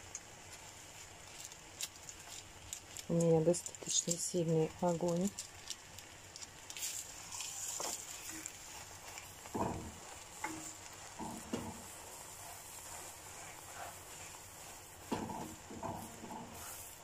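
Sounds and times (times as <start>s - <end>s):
meat sizzling in a pan: 0.0s - 17.0s
tongs knocking on a pan: 9.5s - 11.9s.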